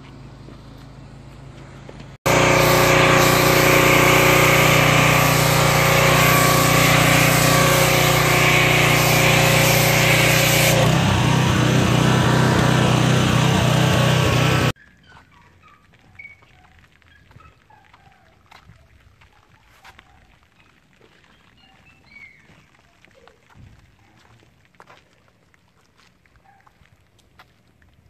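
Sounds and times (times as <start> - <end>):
pressure washer motor drone: 2.2 - 14.8
foam spray hissing: 2.3 - 14.8.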